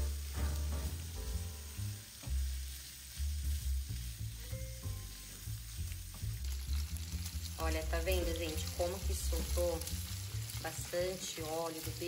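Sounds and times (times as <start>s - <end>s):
bacon sizzling in frying pan: 0.0s - 12.0s
spatula stirring in pan: 2.1s - 7.7s.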